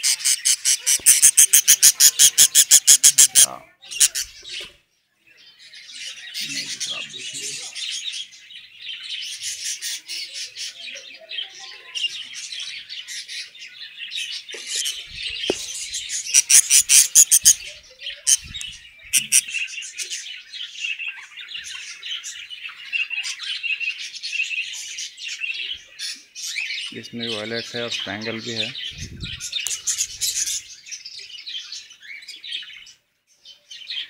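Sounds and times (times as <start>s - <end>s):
harsh budgerigar squawks: 0.0s - 4.4s, 14.6s - 19.7s
budgerigars chirping and chattering: 0.0s - 4.8s, 5.6s - 34.0s.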